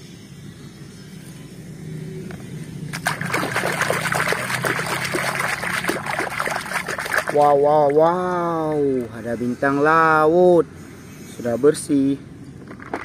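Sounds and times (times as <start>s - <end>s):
low steady hum: 0.0s - 9.8s
water splashing and sloshing: 2.9s - 8.8s.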